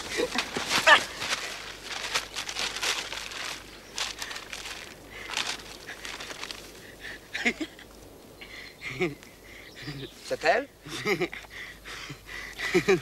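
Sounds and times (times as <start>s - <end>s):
rustling and scuffing: 0.0s - 6.8s.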